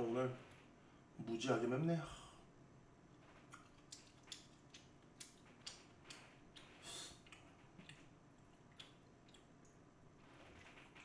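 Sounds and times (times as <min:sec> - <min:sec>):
person chewing food: 0:03.4 - 0:09.8.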